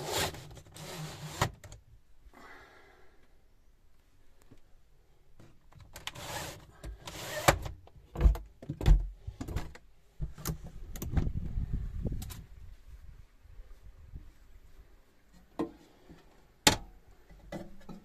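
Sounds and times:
plastic rubbing and sliding: 0.0 - 1.8.

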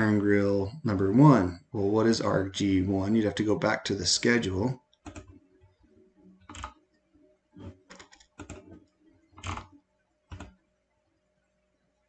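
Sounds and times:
computer clicks and taps: 5.0 - 5.4, 6.4 - 6.8, 7.6 - 10.6.

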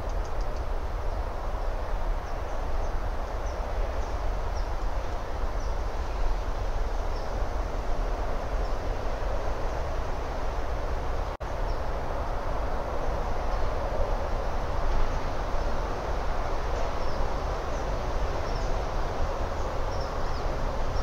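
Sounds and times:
constant rushing noise: 0.0 - 21.0.

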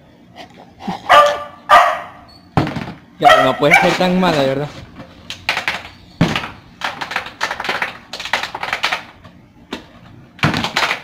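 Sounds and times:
plastic bottle clattering: 5.3 - 9.1, 9.8 - 11.0.

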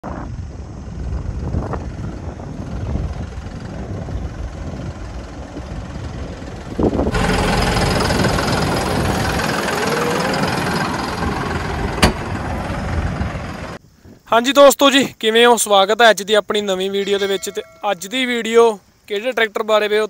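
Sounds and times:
tractor diesel engine rumbling: 1.0 - 13.8
faint rising whine: 4.2 - 13.8.

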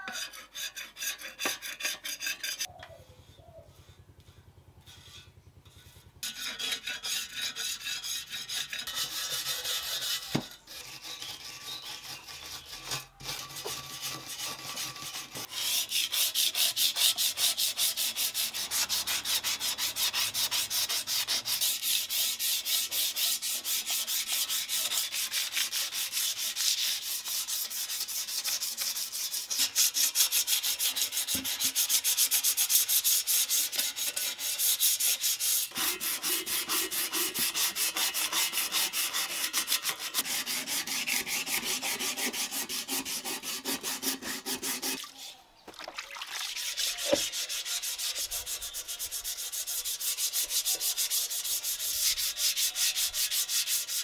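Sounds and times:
sandpaper rubbing on metal: 0.0 - 2.7, 6.2 - 45.4, 46.6 - 54.0.

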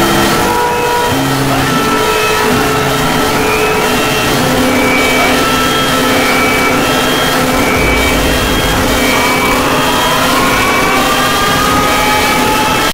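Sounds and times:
distorted alarm noise with drone: 0.0 - 12.9
rising siren tones: 4.8 - 12.8.

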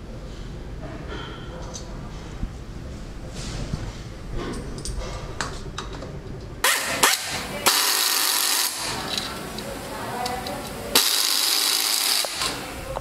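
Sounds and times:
pneumatic screwdriver whirring: 6.6 - 9.3, 10.9 - 12.6.

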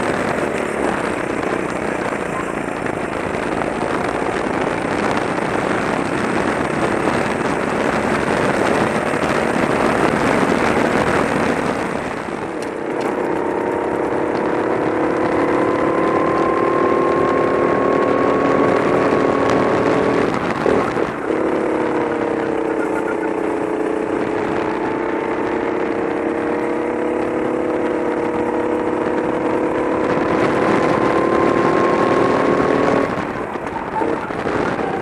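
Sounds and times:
kart engine accelerating: 0.0 - 35.0
kart engine rough roar: 0.0 - 35.0.

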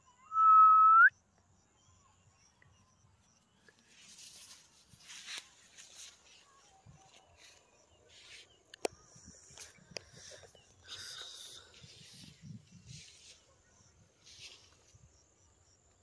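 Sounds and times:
footsteps running through grass: 3.9 - 7.7.

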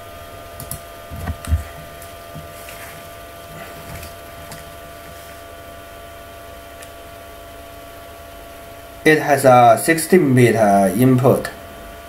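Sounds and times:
electrical hum: 0.0 - 12.0
low thumps: 1.1 - 2.6.

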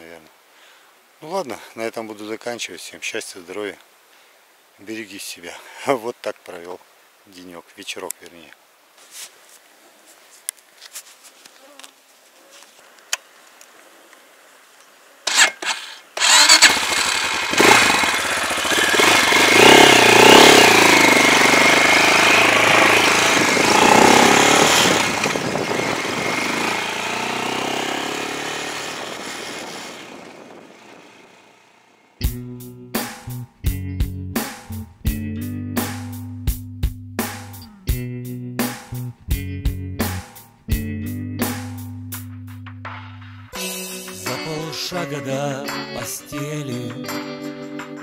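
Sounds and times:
motorcycle engine starting and revving: 15.3 - 32.4.

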